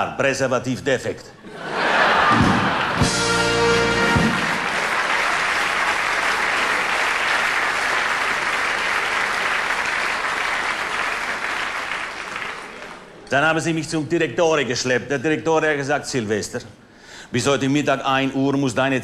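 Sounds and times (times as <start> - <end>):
audience applauding: 1.7 - 13.2
band music: 2.2 - 5.7.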